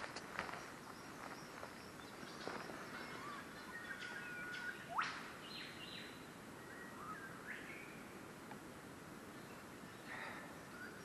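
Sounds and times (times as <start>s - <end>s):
outdoor background hiss: 0.0s - 11.0s
birds whistling: 0.5s - 8.1s.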